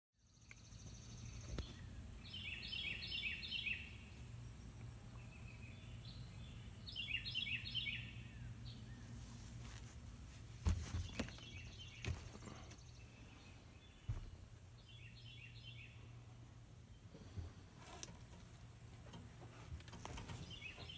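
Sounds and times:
songbird chirping: 0:00.2 - 0:20.9
steady low hum: 0:00.2 - 0:20.9
sharp knocks and clunks: 0:10.6 - 0:12.7, 0:14.0 - 0:14.5.

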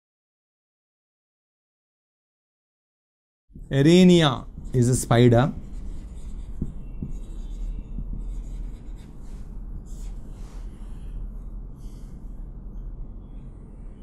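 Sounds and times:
marker pen writing on whiteboard: 0:03.6 - 0:12.1
steady low hum: 0:03.6 - 0:14.0.

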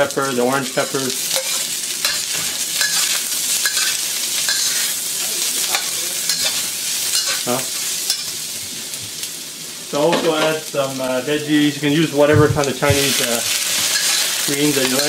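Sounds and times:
vegetables sizzling in oil: 0:00.0 - 0:15.0
metal spatula scraping wok: 0:00.7 - 0:08.3, 0:12.9 - 0:15.0.

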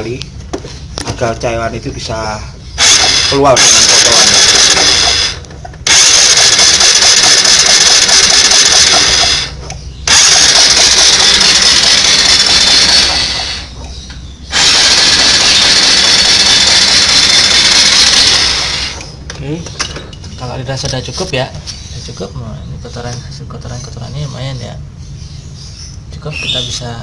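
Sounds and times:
electric starter cranking engine: 0:02.8 - 0:13.9, 0:14.5 - 0:19.2.

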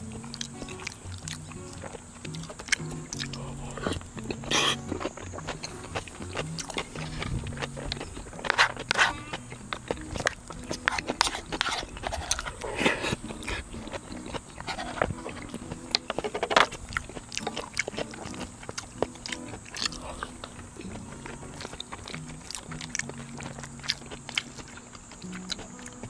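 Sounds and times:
person chewing food: 0:00.0 - 0:26.0.

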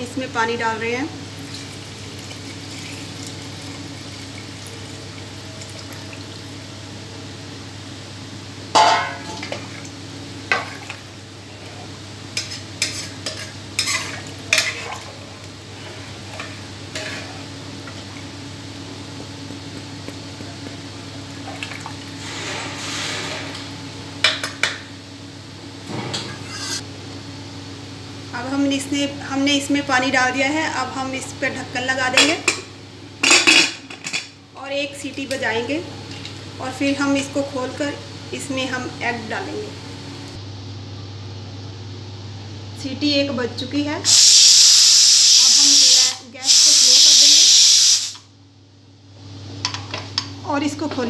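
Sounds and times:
water pouring into a pot: 0:01.4 - 0:06.6.

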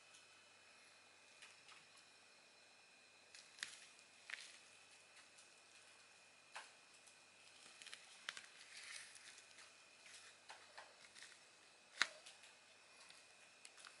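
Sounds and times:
bubble wrap rustle: 0:03.3 - 0:05.9, 0:07.4 - 0:14.0.

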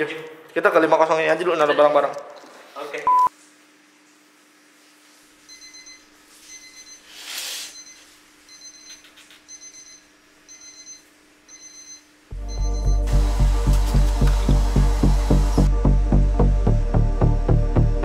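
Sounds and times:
electronic alarm beeping: 0:05.5 - 0:07.0, 0:07.7 - 0:13.2.

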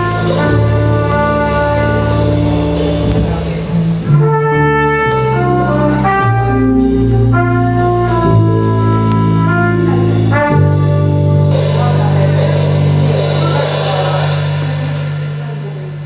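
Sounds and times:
trumpet playing a melody: 0:00.0 - 0:03.2, 0:04.0 - 0:12.2
double bass: 0:00.0 - 0:16.0
small jazz band: 0:00.0 - 0:16.0.

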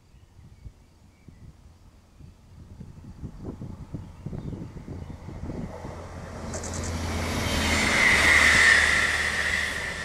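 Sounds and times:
railcar engine hum: 0:00.0 - 0:10.0
wheels on rails: 0:05.7 - 0:10.0.

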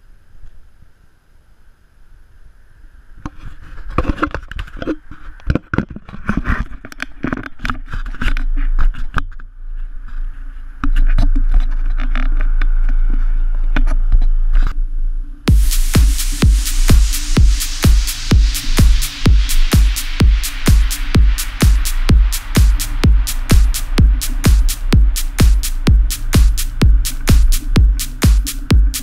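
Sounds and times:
loud steady low rumble: 0:14.8 - 0:29.0.

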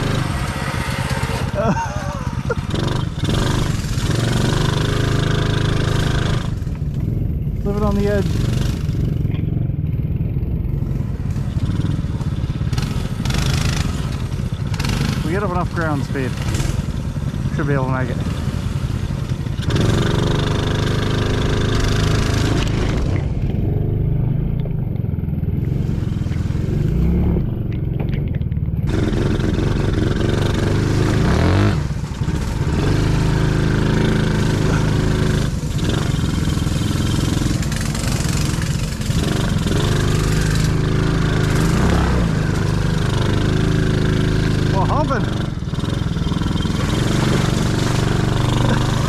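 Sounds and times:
small engine revving: 0:00.0 - 0:09.5, 0:10.8 - 0:49.0.

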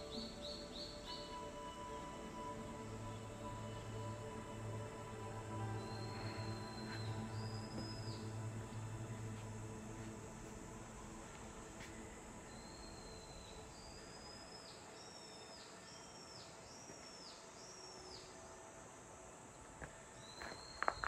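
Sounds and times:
faint background hiss: 0:00.0 - 0:21.0
footsteps: 0:05.8 - 0:12.6.

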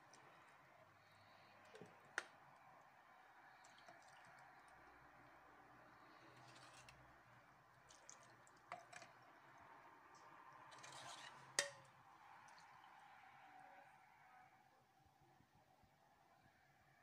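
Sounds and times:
liquid pouring: 0:03.4 - 0:05.2, 0:07.8 - 0:13.4
metal ladle clinking on pots: 0:08.2 - 0:09.3, 0:10.7 - 0:12.0.

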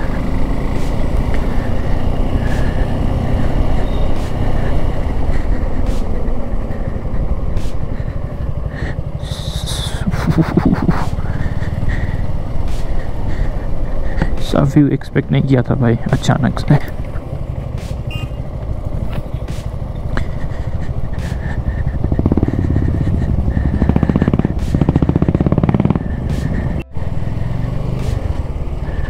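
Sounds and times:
motorcycle engine running: 0:00.0 - 0:29.0
road and wind noise: 0:00.0 - 0:29.0.

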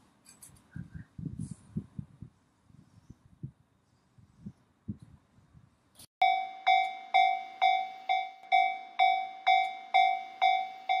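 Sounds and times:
level crossing warning bell: 0:06.2 - 0:11.0.

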